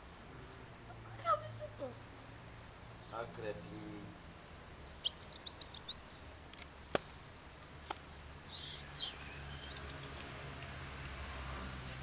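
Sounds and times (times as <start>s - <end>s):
high-pitched chirps: 5.0s - 7.7s.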